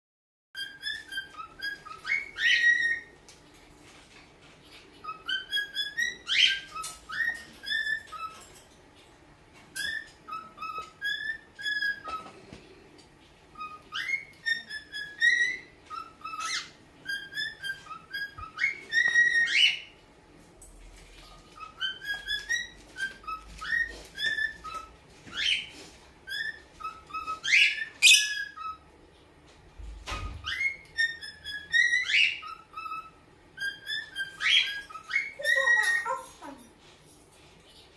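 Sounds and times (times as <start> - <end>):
cockatiel whistling: 0.6 - 3.2, 5.0 - 8.4, 9.7 - 12.4, 13.6 - 20.0, 21.5 - 28.8, 30.0 - 36.2.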